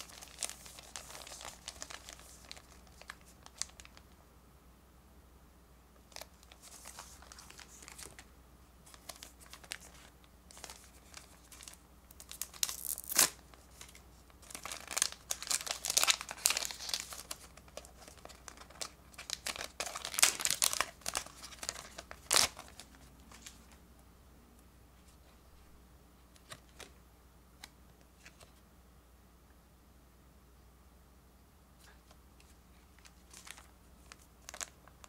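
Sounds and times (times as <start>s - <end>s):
foil wrapper crinkling: 0.0s - 4.0s, 8.9s - 23.8s, 33.0s - 35.0s
wrapper being torn open: 0.0s - 4.0s, 8.9s - 23.6s, 33.0s - 35.0s.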